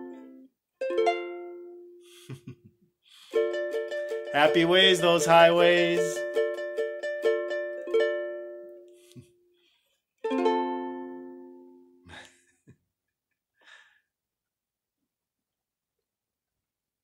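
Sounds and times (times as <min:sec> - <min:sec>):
ukulele strummed chords: 0:00.0 - 0:02.0, 0:03.2 - 0:09.2, 0:10.2 - 0:12.0.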